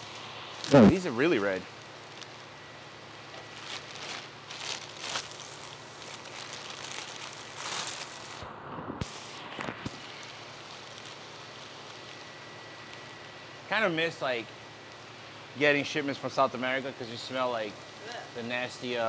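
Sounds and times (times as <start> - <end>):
plastic bags crinkling: 3.3 - 8.4, 10.0 - 12.2.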